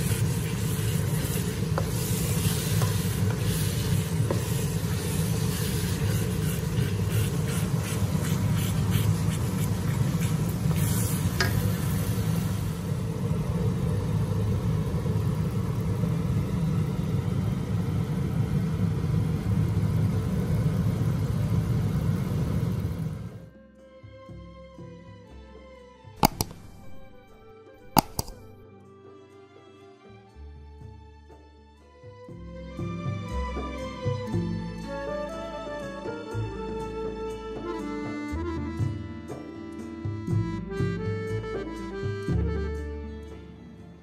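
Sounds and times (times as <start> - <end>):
spatula scraping and tapping pan: 0.0 - 12.0, 26.2 - 28.6
chili paste sizzling in a wok: 0.0 - 23.5, 26.2 - 28.6.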